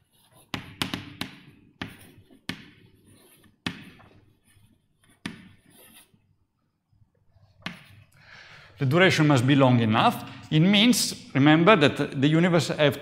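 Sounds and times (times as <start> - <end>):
chalk tapping on blackboard: 0.0 - 4.2, 5.0 - 6.1.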